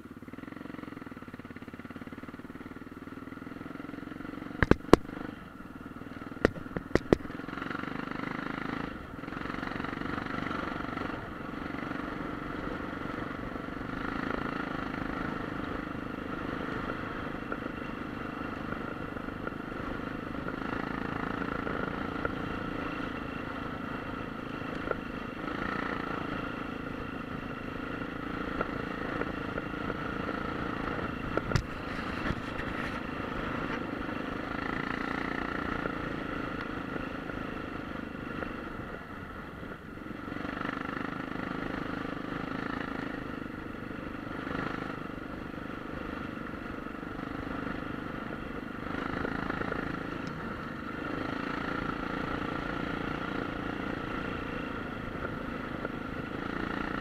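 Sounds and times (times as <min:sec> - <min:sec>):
motorcycle engine running: 0:00.0 - 0:57.0
sharp click: 0:04.6 - 0:05.1, 0:06.4 - 0:07.3.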